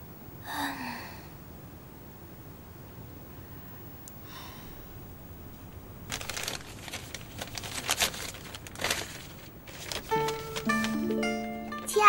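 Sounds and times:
paper rustling and crinkling: 0:06.0 - 0:12.0.

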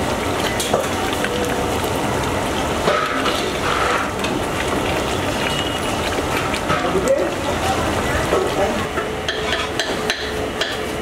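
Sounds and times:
ladle stirring: 0:00.0 - 0:10.8
food sizzling and bubbling in oil: 0:00.0 - 0:11.0.

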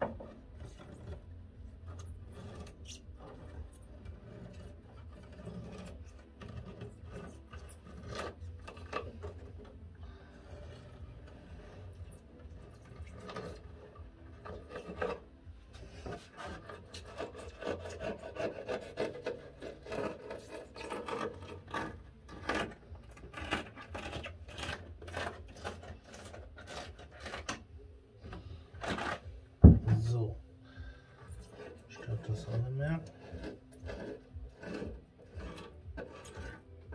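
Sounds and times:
knife cutting cork sheet: 0:16.0 - 0:27.6
cork offcut rubbing: 0:31.1 - 0:36.9.

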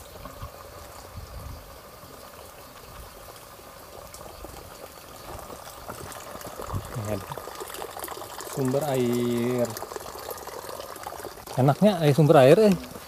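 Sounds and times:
spring water running and splashing: 0:00.0 - 0:13.0.

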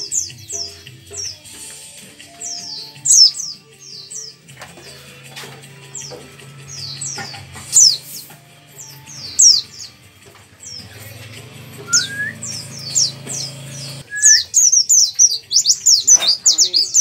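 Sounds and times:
bird singing high chirps: 0:02.3 - 0:04.4, 0:08.8 - 0:10.0, 0:11.8 - 0:17.0.

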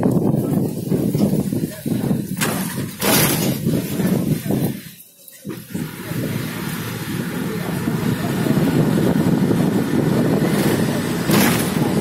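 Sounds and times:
road noise: 0:00.0 - 0:12.0
vehicle engine running: 0:05.5 - 0:12.0.

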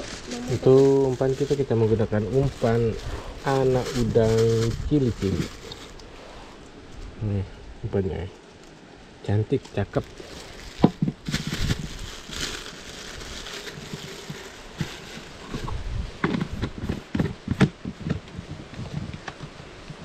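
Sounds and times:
plastic bag crinkling: 0:00.0 - 0:06.0, 0:09.8 - 0:15.6
knocks and clicks on cooler: 0:16.2 - 0:19.4.

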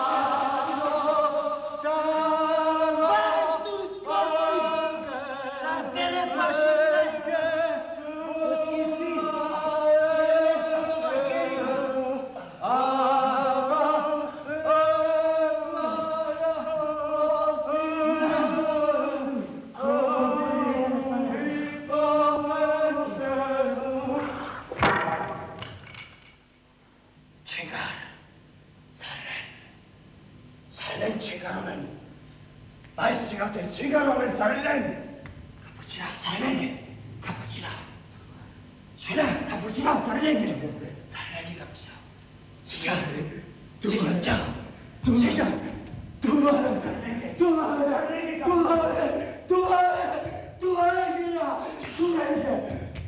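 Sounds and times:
group singing a chant: 0:00.0 - 0:25.6, 0:43.9 - 0:52.8.

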